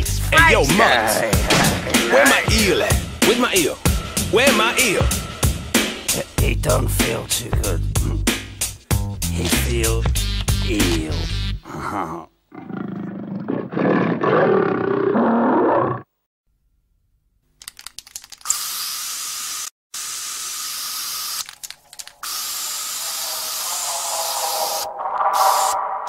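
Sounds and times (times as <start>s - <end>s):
harsh roar-like cartoon sound: 11.7s - 16.1s
spray-paint can hissing: 18.4s - 25.8s.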